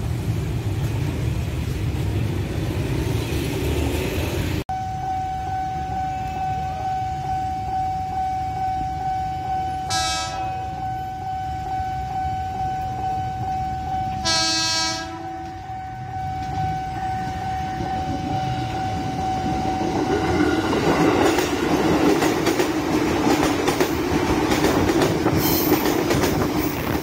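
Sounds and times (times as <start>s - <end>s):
street traffic rumble: 0.0s - 27.0s
train horn: 4.7s - 20.5s.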